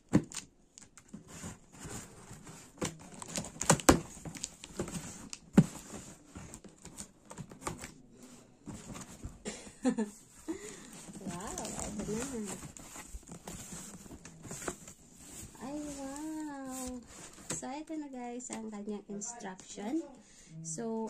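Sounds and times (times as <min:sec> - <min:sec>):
tape and cardboard crinkling: 0:00.1 - 0:08.0, 0:10.7 - 0:17.6.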